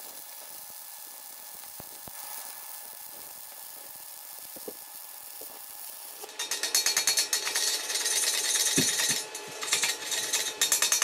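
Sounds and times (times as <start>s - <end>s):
welding arc hissing: 0.0s - 11.0s
metal scraping and tapping: 6.2s - 11.0s.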